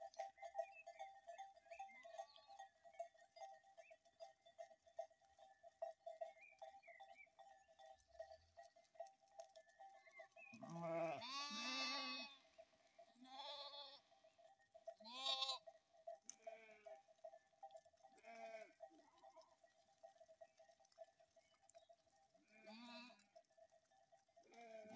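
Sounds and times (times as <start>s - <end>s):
sheep bleating: 10.5s - 12.4s, 13.2s - 14.1s, 15.0s - 15.7s, 16.3s - 17.0s, 18.2s - 19.5s, 22.4s - 23.3s, 24.5s - 24.9s.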